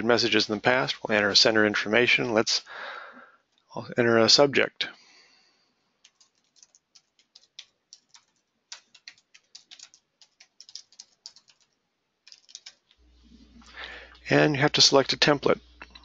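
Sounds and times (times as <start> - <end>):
keyboard typing: 6.0 - 13.0.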